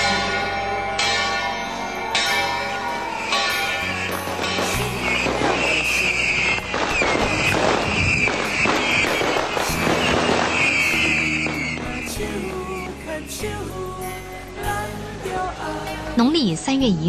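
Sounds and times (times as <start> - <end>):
shrill wavering high tone: 0.0 - 12.4
firecrackers crackling: 2.2 - 14.1.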